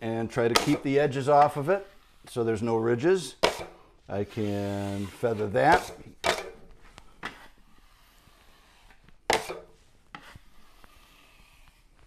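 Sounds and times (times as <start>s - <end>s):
taping knife scraping drywall: 3.4s - 6.5s, 7.2s - 12.0s.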